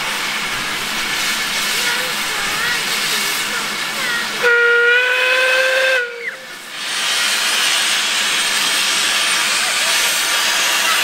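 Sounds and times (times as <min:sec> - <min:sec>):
steam hissing: 0:00.0 - 0:11.0
steam whistle blast: 0:04.4 - 0:06.5.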